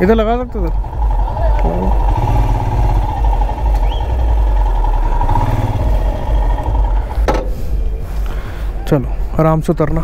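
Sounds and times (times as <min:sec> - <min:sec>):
motorcycle engine running: 0:00.0 - 0:08.0
sharp knock: 0:07.2 - 0:07.5.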